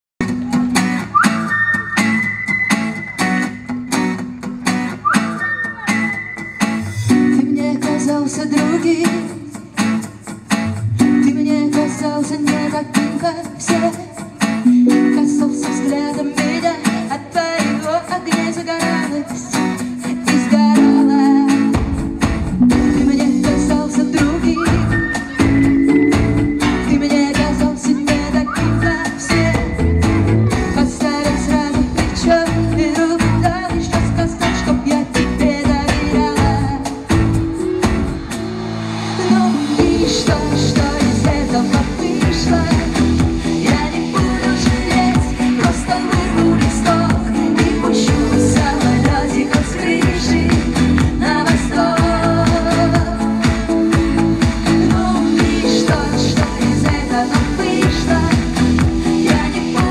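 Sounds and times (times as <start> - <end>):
live pop band over pa: 0.2 - 59.9
deep bass line: 21.8 - 59.9.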